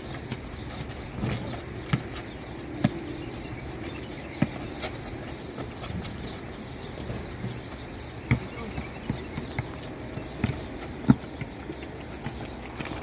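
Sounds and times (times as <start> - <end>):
basketball bouncing on concrete: 0.0 - 3.1, 3.7 - 6.2, 8.2 - 13.0.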